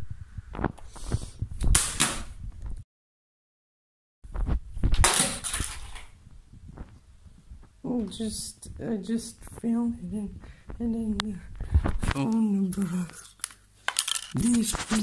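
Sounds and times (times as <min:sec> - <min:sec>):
rattling handling noise: 0:13.9 - 0:14.7.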